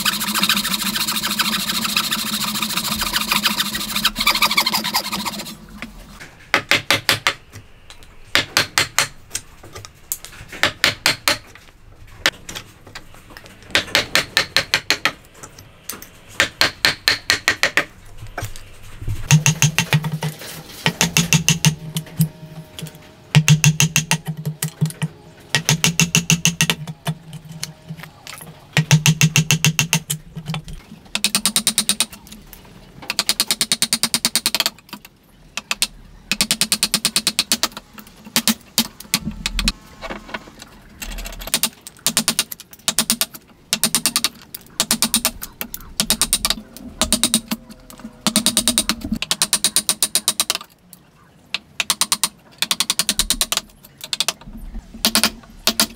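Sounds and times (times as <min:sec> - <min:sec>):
hammer striking chisel: 0:19.3 - 0:20.1, 0:20.9 - 0:21.8.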